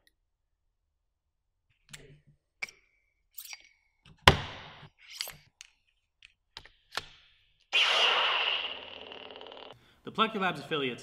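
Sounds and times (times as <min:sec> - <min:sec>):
loud hiss with high tone: 0:07.8 - 0:09.7.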